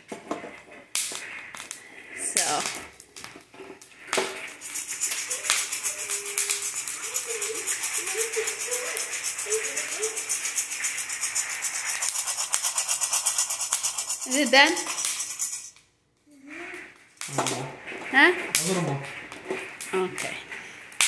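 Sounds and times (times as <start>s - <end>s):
coffee beans rattling in saucepan: 0.0s - 15.8s.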